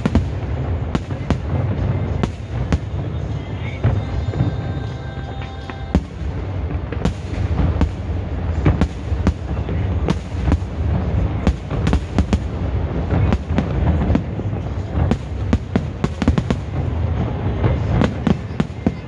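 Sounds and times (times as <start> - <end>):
low rumble: 0.0 - 18.9
fireworks bangs: 0.0 - 19.0.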